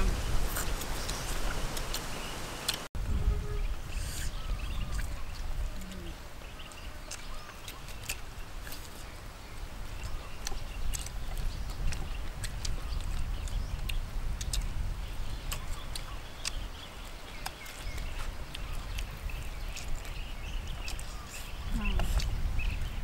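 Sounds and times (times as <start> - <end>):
slurping mouth sounds: 0.4 - 2.8.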